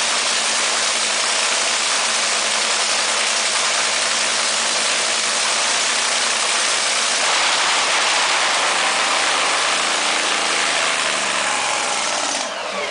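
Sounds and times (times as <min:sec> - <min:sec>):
dragster engine idling loudly: 0:00.0 - 0:12.9.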